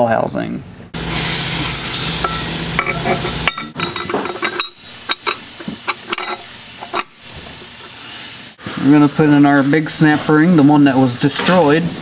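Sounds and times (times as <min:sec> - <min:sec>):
steady background hiss: 0:00.0 - 0:12.0
metal plate clinking: 0:02.2 - 0:07.2.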